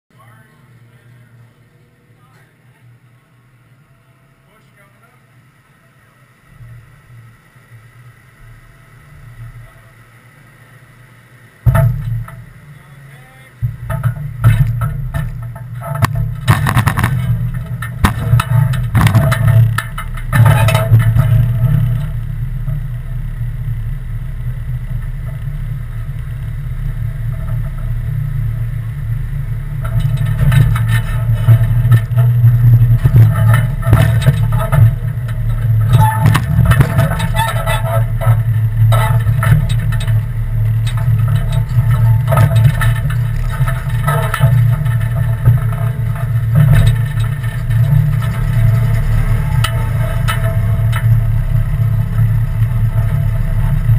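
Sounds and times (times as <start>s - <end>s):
engine running under load: 0.1s - 53.9s
clunks and rattles: 11.6s - 12.7s, 13.6s - 53.9s
loud bump: 11.6s - 12.7s, 13.6s - 53.9s.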